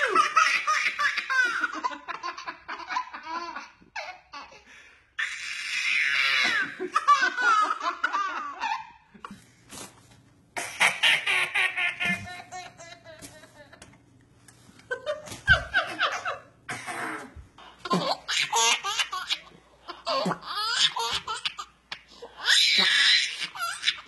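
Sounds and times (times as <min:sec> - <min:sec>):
baby laughing: 0:00.0 - 0:04.6, 0:05.2 - 0:09.0, 0:10.6 - 0:13.9, 0:17.1 - 0:24.0
man laughing: 0:12.0 - 0:13.9.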